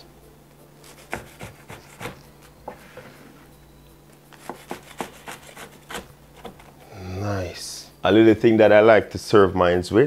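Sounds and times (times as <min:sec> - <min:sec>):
knife cutting crisp food: 0:00.8 - 0:02.3, 0:04.3 - 0:06.8.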